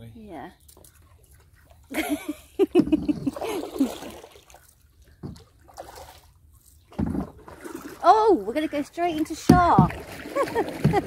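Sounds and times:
water splashing and trickling: 0.0 - 11.0
paddle dipping and dripping: 0.6 - 11.0
woman laughing: 1.9 - 4.0, 10.3 - 11.0.

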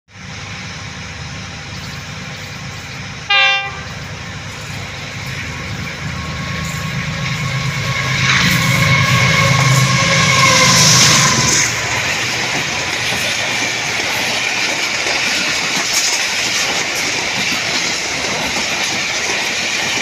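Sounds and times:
diesel locomotive engine rumble: 0.1 - 20.0
locomotive horn blast: 3.3 - 4.1, 6.2 - 11.9.

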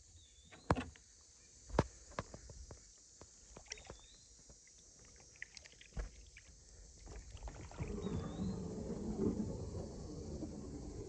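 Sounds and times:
paddle drips and splashes: 3.6 - 4.0, 4.6 - 11.0
water swishing: 7.1 - 11.0.

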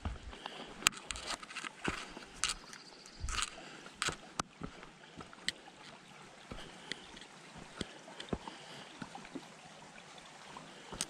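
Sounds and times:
footsteps on gravel: 0.0 - 5.5
creek trickling: 0.0 - 11.0.

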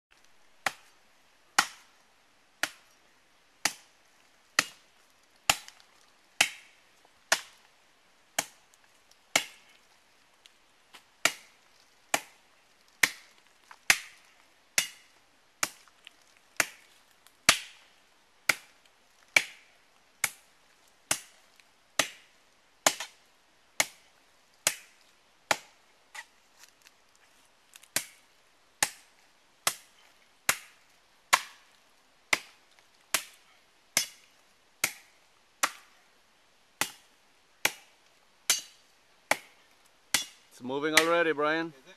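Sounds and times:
machete chopping into palm trunk: 9.3 - 9.6, 11.2 - 11.5, 13.9 - 14.2, 17.5 - 17.8, 22.8 - 23.2, 30.5 - 31.7, 34.8 - 35.9, 38.5 - 40.4.

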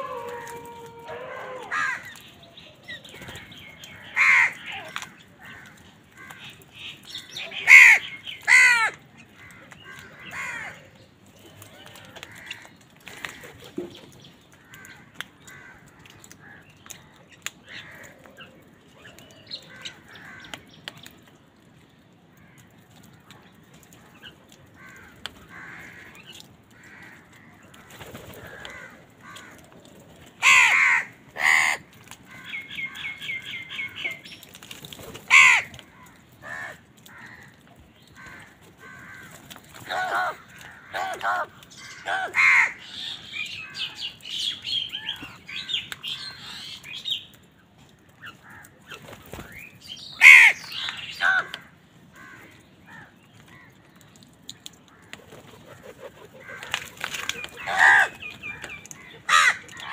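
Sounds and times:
crows cawing: 0.0 - 2.2, 3.9 - 6.6, 7.2 - 10.9, 11.8 - 13.6, 14.6 - 18.4, 19.6 - 20.7, 24.6 - 33.9, 35.2 - 44.2, 48.2 - 48.8, 50.1 - 53.9, 54.9 - 59.9.

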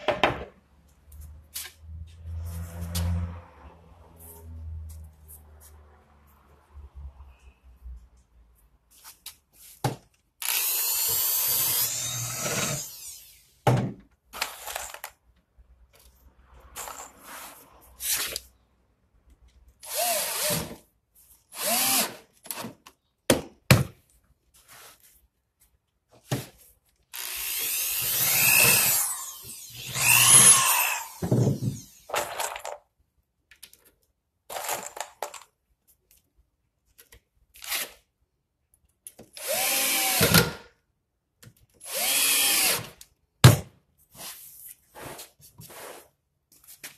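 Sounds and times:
cordless drills running: 10.4 - 13.4, 21.6 - 22.1, 27.2 - 32.1, 39.4 - 40.3, 41.9 - 42.9.

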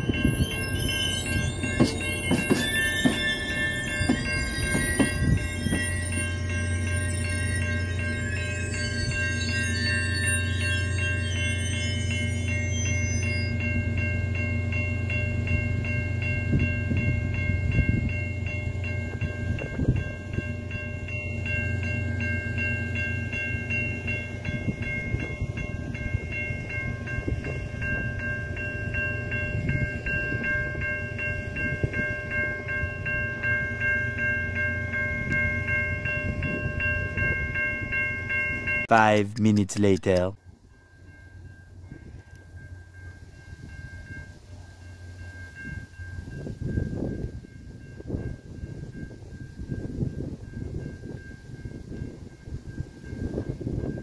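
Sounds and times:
level-crossing warning bell: 0.0 - 54.0
train cars rumbling slowly: 0.0 - 54.0
train wheels knocking: 1.7 - 5.9.

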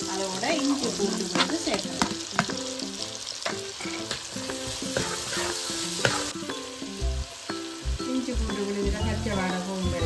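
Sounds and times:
food sizzling in a frying pan: 0.0 - 10.0
spatula scraping and knocking pan: 0.3 - 2.7, 3.4 - 6.4.

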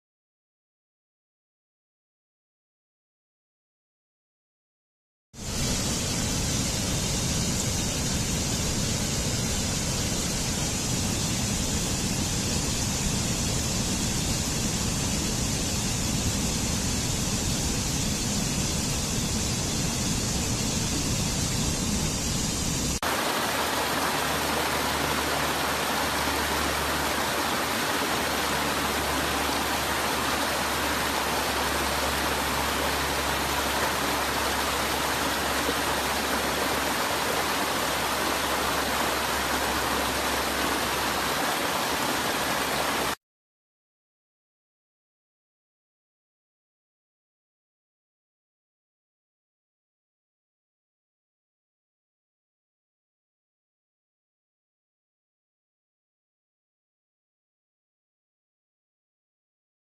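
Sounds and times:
stream rushing over rocks: 23.0 - 43.2.

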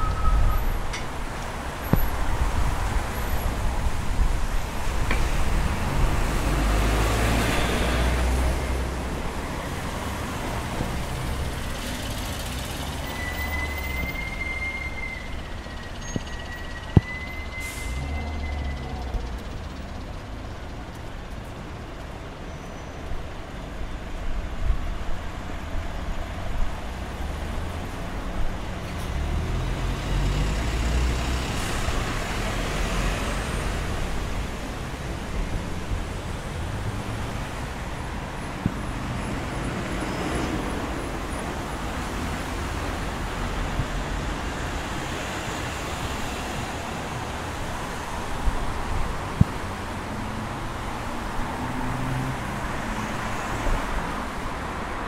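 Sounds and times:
thin high whistle: 0.0 - 0.8, 13.0 - 19.0
road traffic passing: 0.0 - 55.0.

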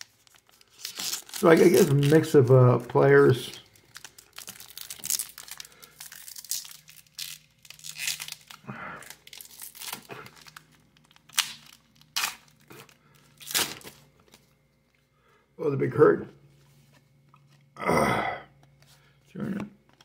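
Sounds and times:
plastic wrapper crinkling and tearing: 0.0 - 14.4.

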